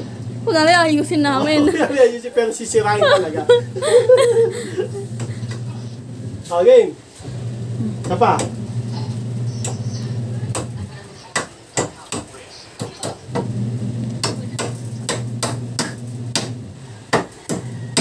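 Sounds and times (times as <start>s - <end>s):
steady low hum: 0.0s - 11.3s, 13.2s - 17.1s
hammer striking wood: 14.2s - 18.0s.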